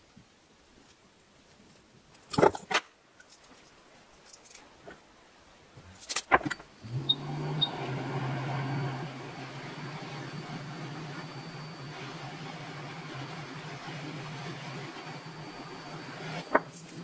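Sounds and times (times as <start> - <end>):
hot-air station blowing: 6.5 - 17.0
short beeps: 6.9 - 13.6.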